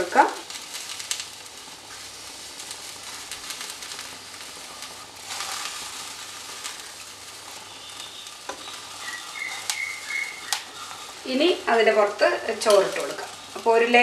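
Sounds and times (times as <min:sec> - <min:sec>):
pot hissing on stove: 0:00.0 - 0:14.0.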